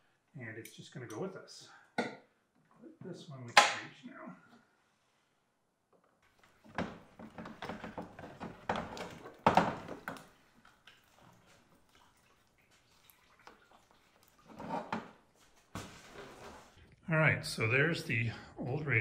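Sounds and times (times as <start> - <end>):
plastic and metal scraping: 6.5 - 10.4, 14.4 - 16.8
knocks and clunks: 6.6 - 10.2.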